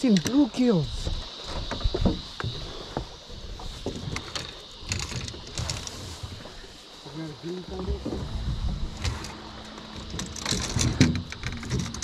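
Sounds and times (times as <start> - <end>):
low rumble: 7.7 - 11.5.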